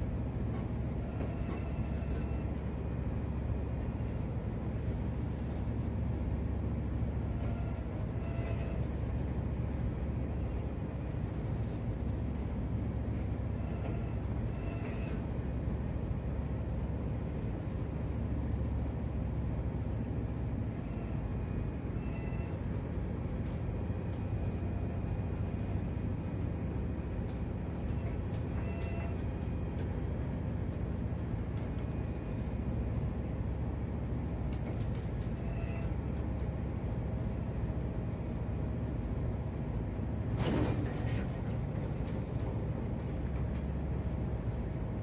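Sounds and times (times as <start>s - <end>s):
ship engine low drone: 0.0s - 45.0s
faint squeaks: 1.0s - 2.6s, 35.4s - 36.0s.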